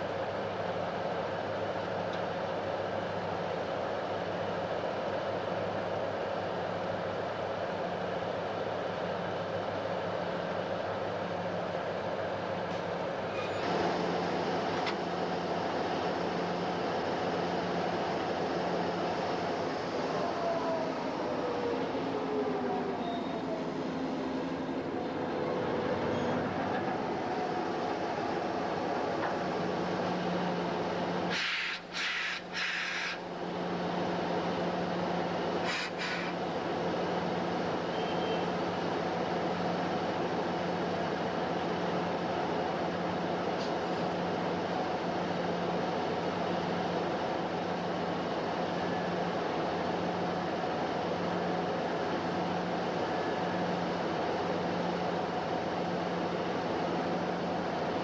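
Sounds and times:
diesel locomotive humming: 0:00.0 - 0:58.0
loud hissing bursts: 0:31.3 - 0:33.3, 0:35.6 - 0:36.4.

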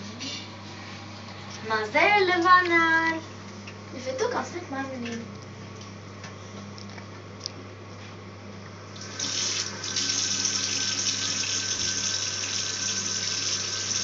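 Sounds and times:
tap water running into basin: 0:08.9 - 0:14.0
faucet turned on: 0:09.0 - 0:14.0.

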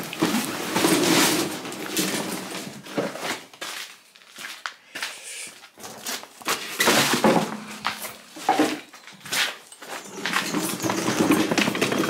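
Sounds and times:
lawnmower knocking and scraping on concrete: 0:00.0 - 0:03.3, 0:05.8 - 0:12.0.

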